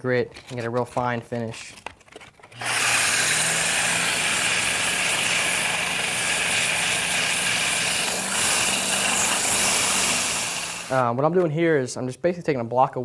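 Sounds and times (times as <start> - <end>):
electric motor humming: 2.5 - 11.0
sanding block hissing on cork: 3.8 - 11.0.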